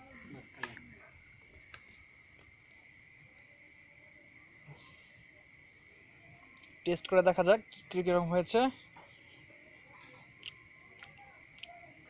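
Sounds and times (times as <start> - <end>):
night insects chirring: 0.0 - 12.0.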